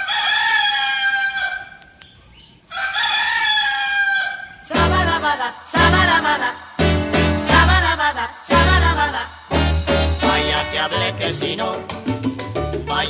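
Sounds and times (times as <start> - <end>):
rooster crowing: 0.0 - 2.0, 2.7 - 5.0
music: 4.8 - 13.0.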